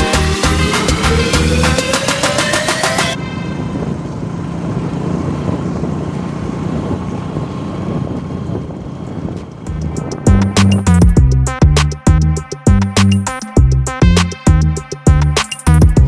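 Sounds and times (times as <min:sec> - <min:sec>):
background music: 0:00.0 - 0:03.5, 0:09.7 - 0:16.0
wind rushing over microphone: 0:03.2 - 0:11.5
motorcycle engine running: 0:03.6 - 0:16.0.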